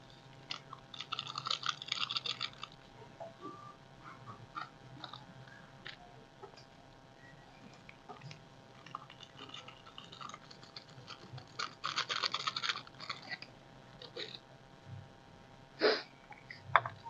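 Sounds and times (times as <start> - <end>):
seasoning crinkling and crunching: 0.0 - 3.0, 7.8 - 14.4.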